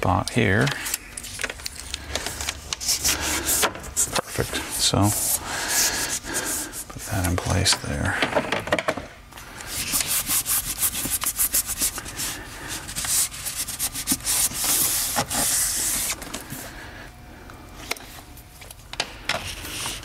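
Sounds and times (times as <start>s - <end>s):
hands rubbing mat scratchily: 9.7s - 16.2s.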